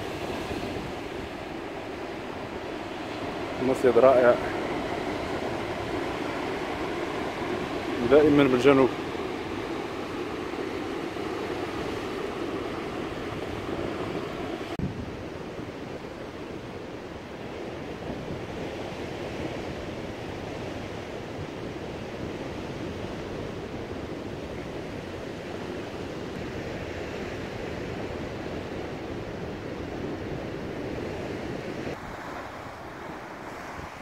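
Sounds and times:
surf breaking on rocks: 0:00.0 - 0:14.9
wind on microphone: 0:00.0 - 0:34.0.

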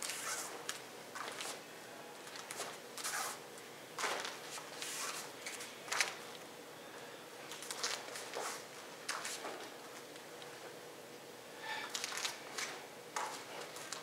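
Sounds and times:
bare feet shuffling on mats: 0:00.0 - 0:01.6.

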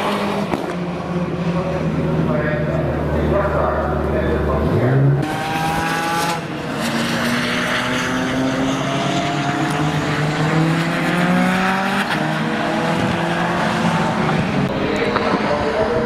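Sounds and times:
race car engine accelerating: 0:00.0 - 0:16.0.

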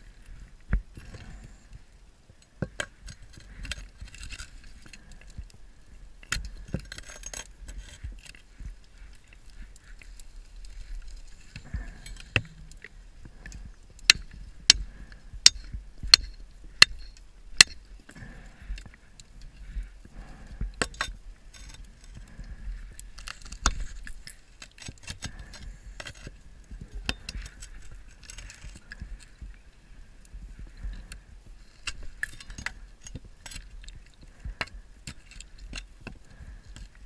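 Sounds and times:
scuba regulator breathing: 0:11.5 - 0:15.7, 0:18.1 - 0:20.8.

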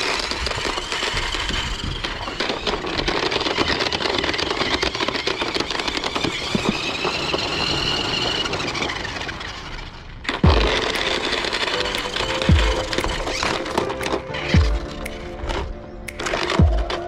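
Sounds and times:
toy car motors whining: 0:00.0 - 0:14.6
loud low thump: 0:10.4 - 0:10.8.

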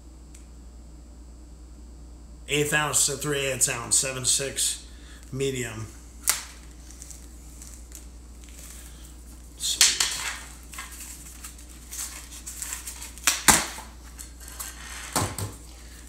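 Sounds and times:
low steady hum: 0:00.0 - 0:16.0
packaging rustling by hand: 0:06.2 - 0:16.0.

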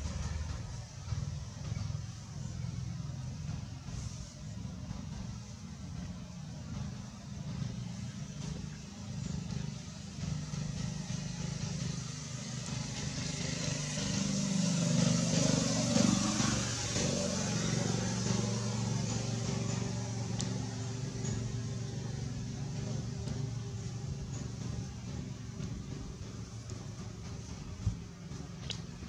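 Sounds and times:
vehicle engine running: 0:00.0 - 0:29.0.

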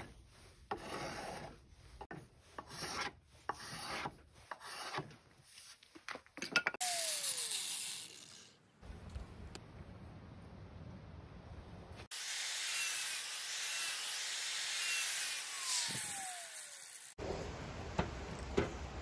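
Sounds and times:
angle grinder sanding wood: 0:00.0 - 0:05.7, 0:06.8 - 0:08.5, 0:12.1 - 0:17.2
sandpaper rubbing on wood: 0:00.0 - 0:05.7.

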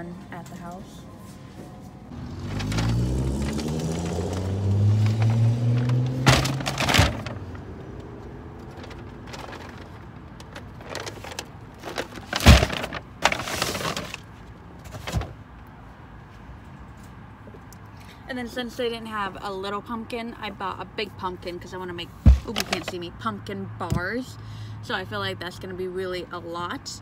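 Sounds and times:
car engine accelerating: 0:02.1 - 0:09.1
groceries knocking in metal cart: 0:05.3 - 0:07.5, 0:08.7 - 0:14.2, 0:22.3 - 0:22.9.

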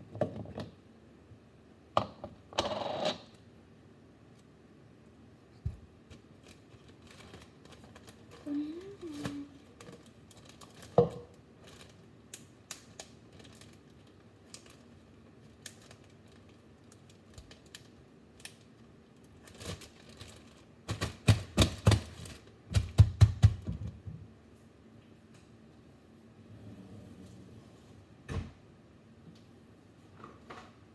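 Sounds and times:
plastic bag crinkling: 0:06.1 - 0:21.1.

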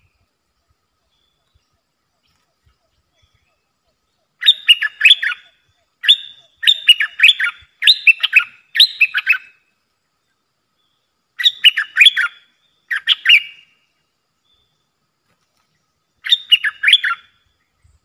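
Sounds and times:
bulbul calling: 0:01.0 - 0:09.6, 0:10.8 - 0:13.8, 0:16.1 - 0:18.0.

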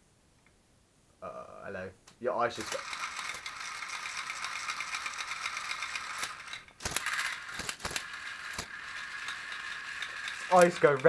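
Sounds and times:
toy motor whirring with ratchety clicking: 0:02.6 - 0:11.0.

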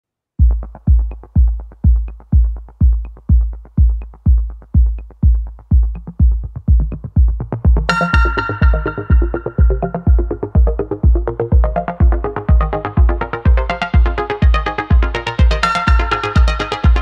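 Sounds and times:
electronic dance music: 0:00.4 - 0:17.0
heavy kick drum: 0:00.4 - 0:17.0
bright synth: 0:07.9 - 0:17.0.

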